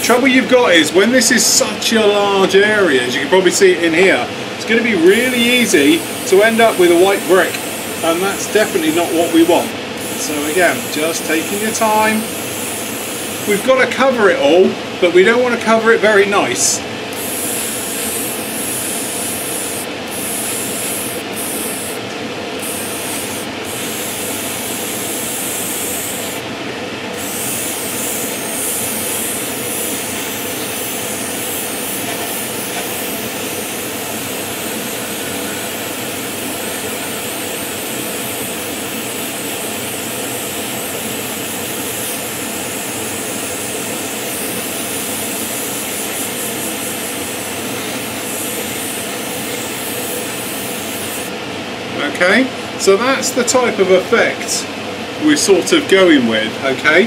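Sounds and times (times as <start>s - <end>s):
extractor fan running: 0.0s - 57.0s
airbrush hissing: 4.7s - 14.0s, 17.1s - 26.5s, 27.1s - 51.4s.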